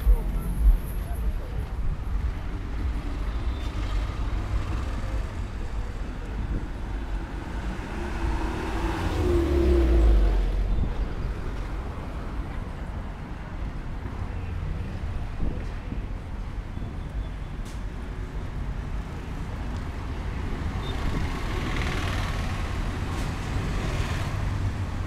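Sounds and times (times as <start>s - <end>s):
street traffic rumbling: 0.0s - 25.0s.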